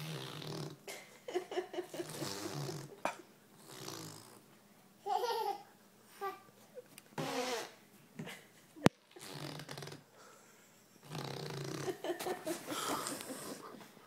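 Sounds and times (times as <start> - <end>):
baby laughing: 5.0 - 5.7.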